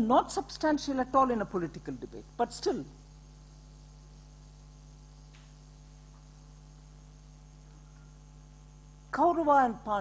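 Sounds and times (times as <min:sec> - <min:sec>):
electrical mains hum: 0:00.0 - 0:10.0
faint click: 0:05.3 - 0:05.6.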